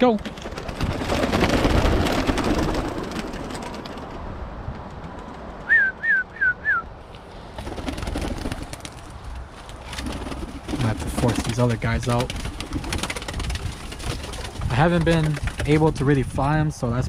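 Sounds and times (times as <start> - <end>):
pigeon wings flapping: 0.0 - 5.8, 7.3 - 16.1
short falling whistled notes: 5.6 - 6.9.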